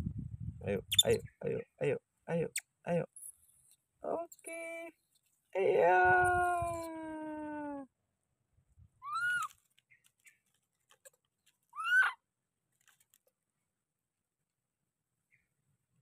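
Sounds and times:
baby macaque squealing: 0:00.9 - 0:01.2, 0:09.0 - 0:09.5, 0:11.8 - 0:12.2
long descending monkey call: 0:11.8 - 0:12.2.

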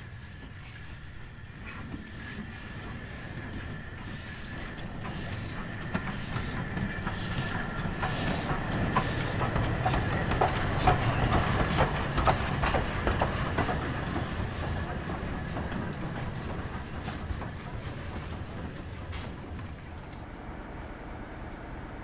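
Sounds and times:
steam locomotive rumbling: 0:00.0 - 0:22.0
wheels clicking over rail joints: 0:01.6 - 0:20.3.

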